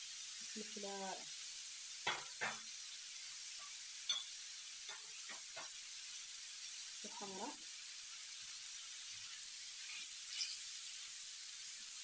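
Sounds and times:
vegetables sizzling in a frying pan: 0:00.0 - 0:12.0
spatula scraping a pan: 0:09.2 - 0:10.9.

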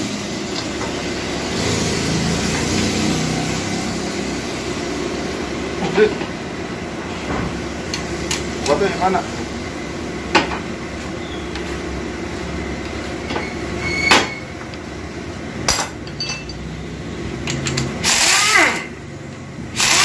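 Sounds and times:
sharp metal clinks: 0:16.0 - 0:16.7
pneumatic tool hissing burst: 0:18.0 - 0:18.9, 0:19.8 - 0:20.0.

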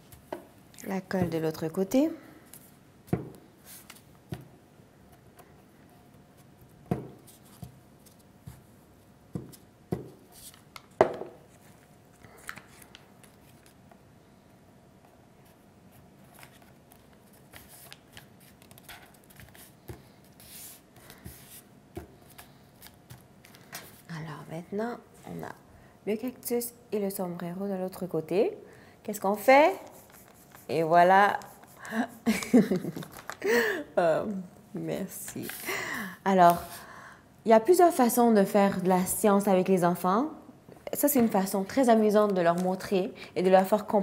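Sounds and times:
paper rustling: 0:16.0 - 0:21.6, 0:29.7 - 0:33.6.

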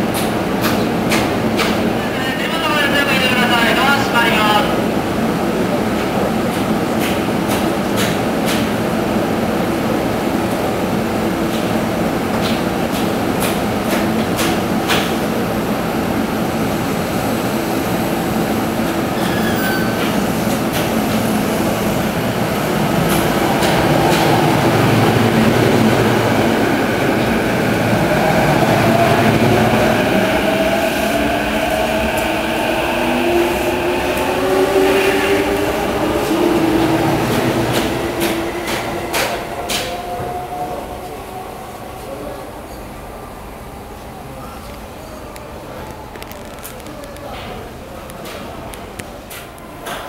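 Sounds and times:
train low rumble: 0:00.0 - 0:42.6
train doors closing clicks: 0:06.0 - 0:08.8, 0:22.4 - 0:28.0, 0:28.6 - 0:41.1, 0:45.2 - 0:50.0.

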